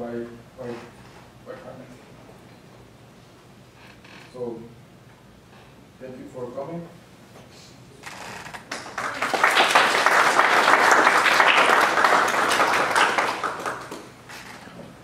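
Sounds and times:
audience applauding: 0:08.7 - 0:14.2.

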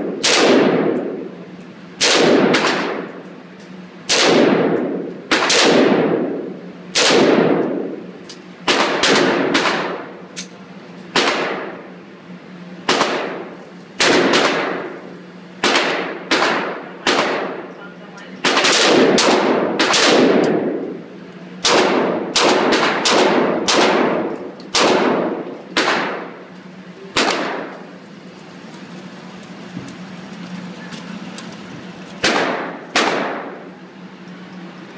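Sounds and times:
rifle shots echoing: 0:00.0 - 0:01.3, 0:02.0 - 0:03.1, 0:04.1 - 0:08.0, 0:08.6 - 0:10.1, 0:11.1 - 0:11.8, 0:12.9 - 0:15.0, 0:15.6 - 0:17.7, 0:18.4 - 0:21.0, 0:21.6 - 0:26.4, 0:27.1 - 0:27.8, 0:32.2 - 0:33.7.

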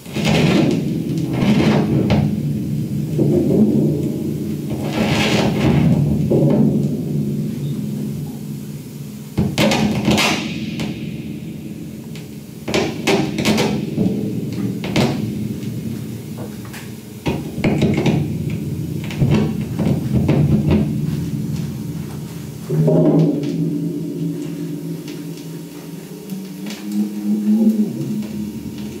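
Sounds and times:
sharp knocks and clatters: 0:00.1 - 0:07.2, 0:12.1 - 0:23.7
sustained low drone: 0:18.4 - 0:29.0.

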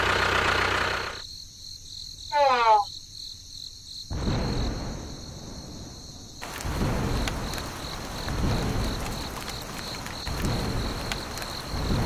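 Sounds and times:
rain hiss: 0:04.1 - 0:12.0
thunder rolling: 0:04.1 - 0:12.0.

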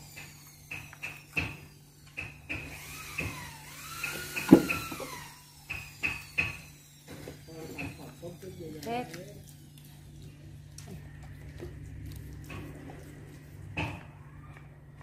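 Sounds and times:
steady low hum: 0:07.8 - 0:15.0.

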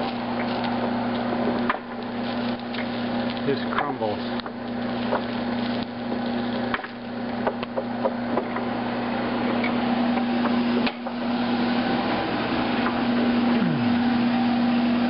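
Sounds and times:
seeds crackling: 0:00.0 - 0:07.8
oil press humming: 0:00.0 - 0:15.0.

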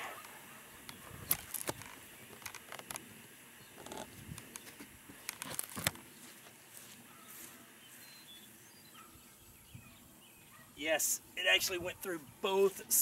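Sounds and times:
footsteps through grass: 0:03.8 - 0:09.1.

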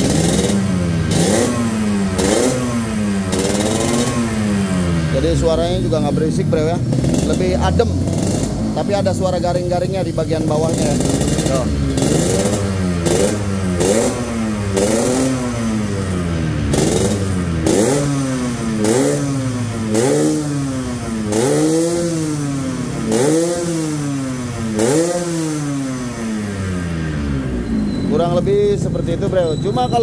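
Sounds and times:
motorcycle engine revving: 0:00.0 - 0:30.0.

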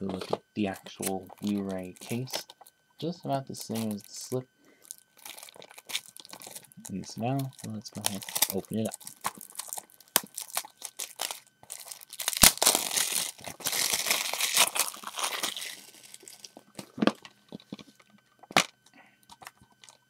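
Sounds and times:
shrink wrap tearing and crinkling: 0:00.7 - 0:02.6, 0:03.5 - 0:17.0.

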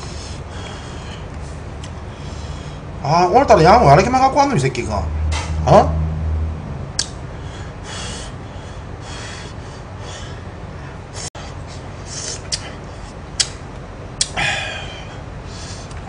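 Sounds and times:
sharp hissing breaths: 0:00.0 - 0:02.9, 0:07.3 - 0:13.2, 0:14.4 - 0:16.0
sharp clicks: 0:07.0 - 0:07.2.

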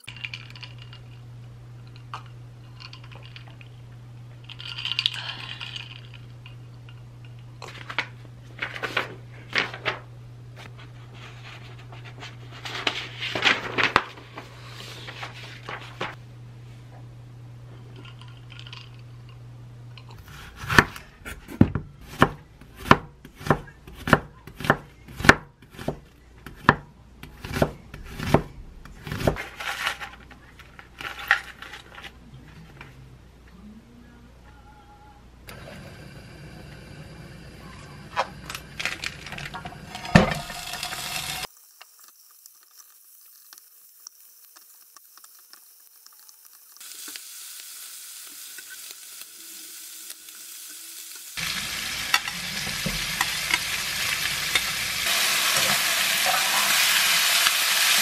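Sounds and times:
paper pages rustling: 0:07.6 - 0:16.2
knife slicing onion on board: 0:20.2 - 0:29.4
low hum: 0:26.2 - 0:41.5.

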